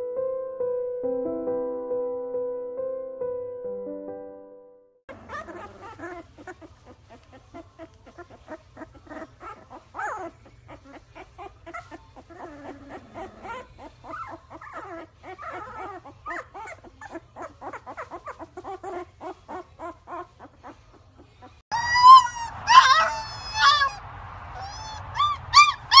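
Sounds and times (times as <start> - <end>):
puppies whimpering: 5.1 - 24.0, 24.6 - 26.0.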